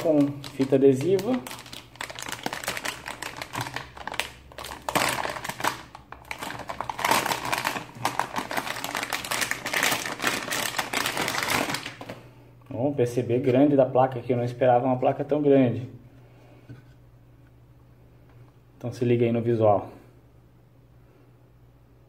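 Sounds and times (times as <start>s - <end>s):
plastic bag crinkling: 0.0s - 12.3s.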